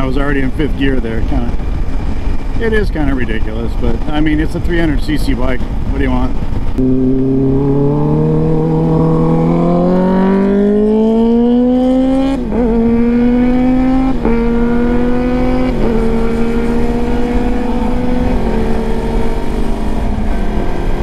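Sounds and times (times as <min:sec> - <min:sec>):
motorcycle engine accelerating: 0:06.3 - 0:21.0.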